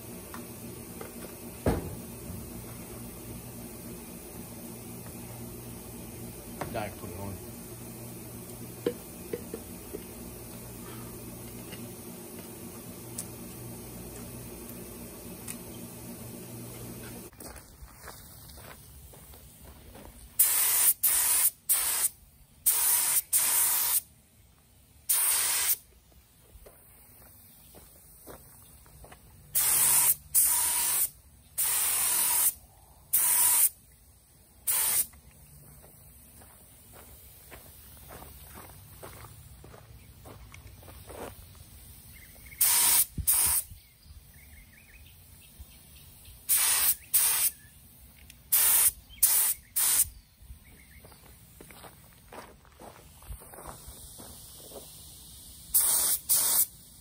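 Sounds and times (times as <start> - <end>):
paint spray gun hissing: 0.0 - 17.3, 20.4 - 24.1, 25.0 - 25.9, 29.5 - 35.2, 40.7 - 43.8, 46.4 - 50.2, 53.0 - 57.0.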